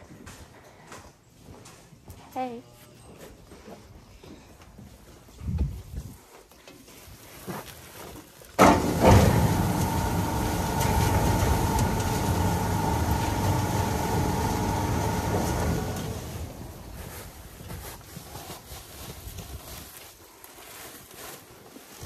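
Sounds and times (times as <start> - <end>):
farm machine motor whining: 8.6 - 17.6.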